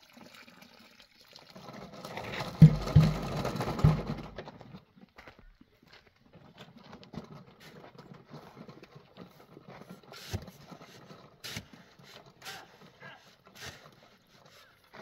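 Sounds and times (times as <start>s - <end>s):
shovel scraping sand: 9.3s - 15.0s.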